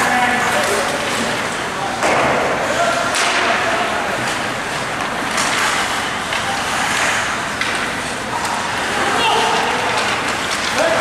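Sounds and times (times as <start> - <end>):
crowd noise: 0.0 - 11.0
skates on ice: 2.4 - 11.0.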